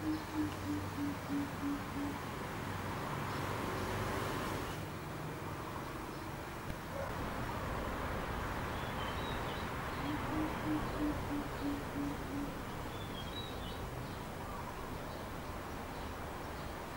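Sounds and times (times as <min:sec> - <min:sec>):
bird deep hooting calls: 0:00.0 - 0:02.2, 0:10.0 - 0:12.6.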